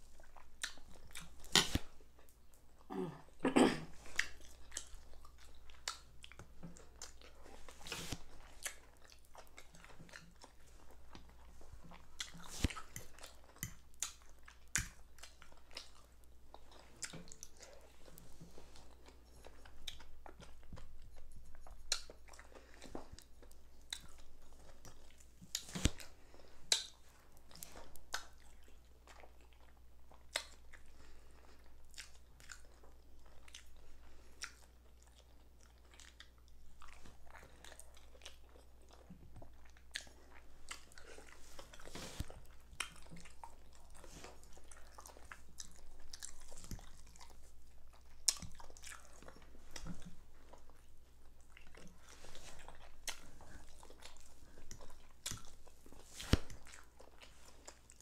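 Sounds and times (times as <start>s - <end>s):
chewing and mouth sounds: 0.0s - 58.0s.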